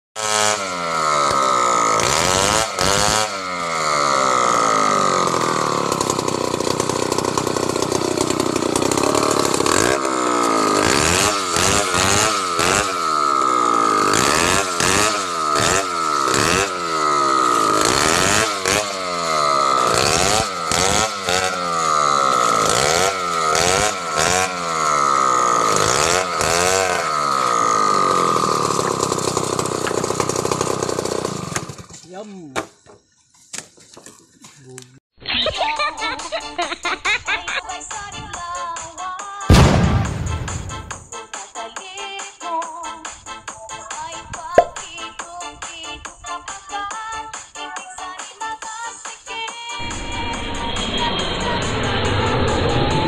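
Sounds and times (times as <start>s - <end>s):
two-stroke chainsaw revving: 0.2s - 32.0s, 39.5s - 41.1s.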